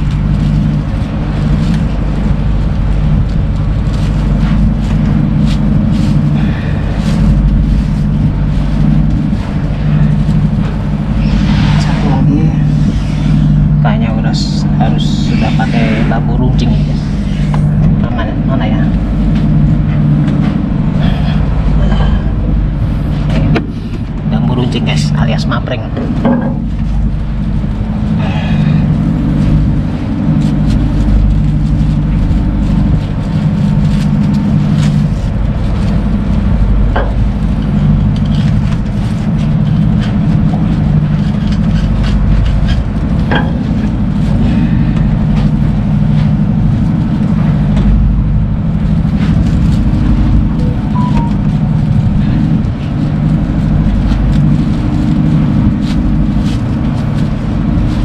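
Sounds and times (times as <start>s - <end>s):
ship engine low drone: 0.0s - 58.0s.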